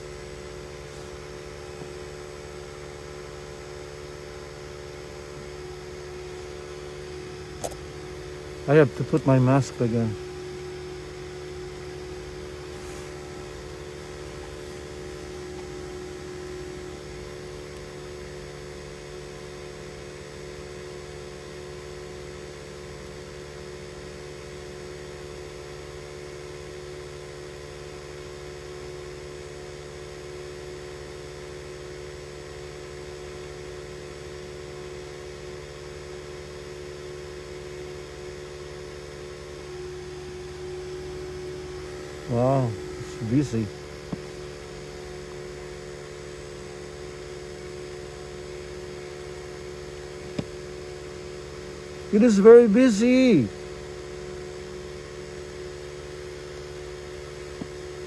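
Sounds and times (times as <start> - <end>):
car cabin engine hum: 0.0 - 24.1, 38.9 - 58.0.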